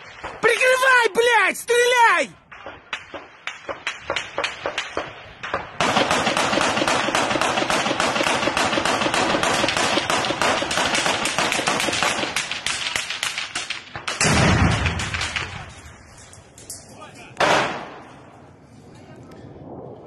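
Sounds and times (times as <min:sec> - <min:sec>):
single gunshots: 0:02.5 - 0:15.6, 0:17.4 - 0:18.0
rapid automatic gunfire: 0:05.8 - 0:15.4.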